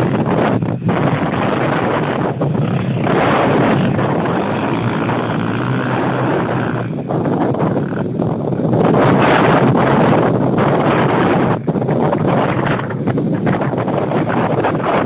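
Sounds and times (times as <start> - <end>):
dirt bike engine revving: 0.0 - 11.6.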